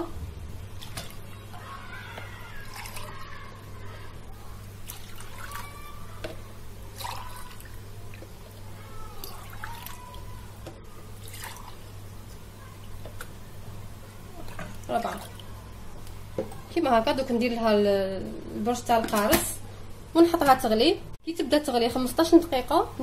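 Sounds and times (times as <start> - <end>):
low steady hum: 0.0 - 23.0
water pouring into a saucepan: 2.6 - 3.2, 7.0 - 8.6, 11.2 - 11.9.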